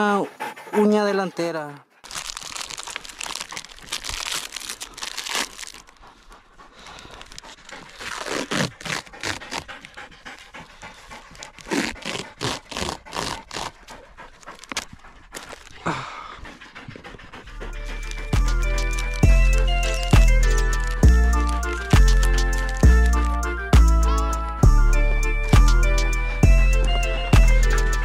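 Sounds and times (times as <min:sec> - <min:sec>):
dog panting hard: 0:00.0 - 0:28.0
packets rustling and crinkling: 0:02.0 - 0:09.9, 0:14.5 - 0:15.8, 0:17.9 - 0:23.5.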